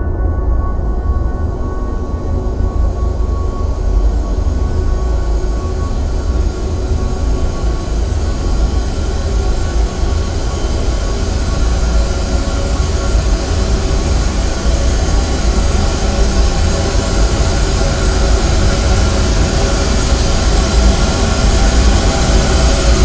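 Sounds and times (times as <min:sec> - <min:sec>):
droning hum and hiss: 0:00.0 - 0:23.0.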